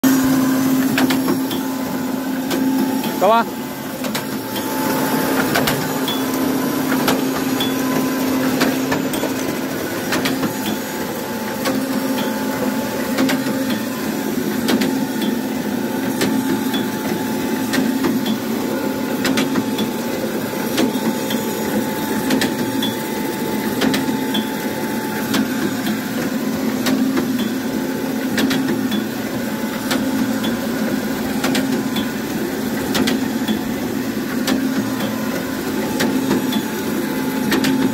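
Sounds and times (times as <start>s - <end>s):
machine humming: 0.0s - 37.9s
mechanism knocking and clacking: 4.0s - 14.0s, 14.6s - 15.4s, 16.1s - 18.5s, 19.2s - 19.9s, 20.6s - 23.0s, 23.6s - 24.6s, 25.2s - 29.1s, 29.7s - 37.9s.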